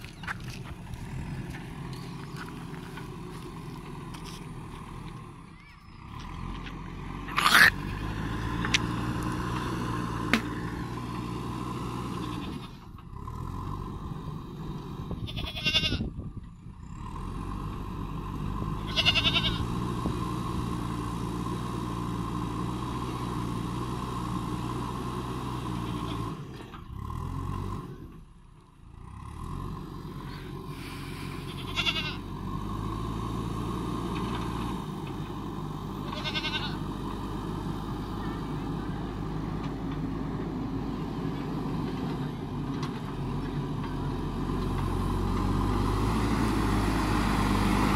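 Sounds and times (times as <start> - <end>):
diesel engine running: 0.0 - 47.9
goat bleating: 7.3 - 7.9, 12.2 - 12.8, 15.2 - 16.0, 18.8 - 19.7, 31.3 - 32.3, 36.0 - 36.8.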